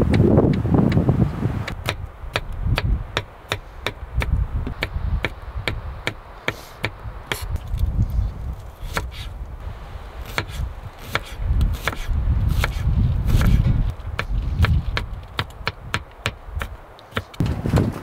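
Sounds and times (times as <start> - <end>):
wind rumble on microphone: 0.0 - 18.0
knife chopping on wooden board: 10.3 - 17.4.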